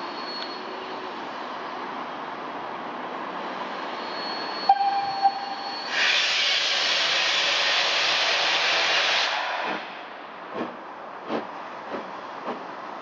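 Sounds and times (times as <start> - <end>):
loud steam blowing from cylinders: 3.4 - 12.2
steam whistle: 4.4 - 9.7
steam locomotive hissing: 5.9 - 10.0.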